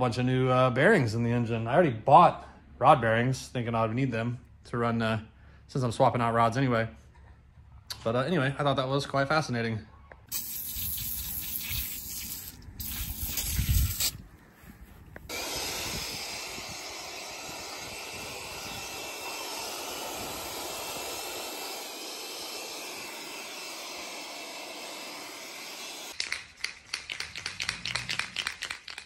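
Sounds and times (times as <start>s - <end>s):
pressure washer spraying water: 10.3s - 14.2s, 15.3s - 26.2s.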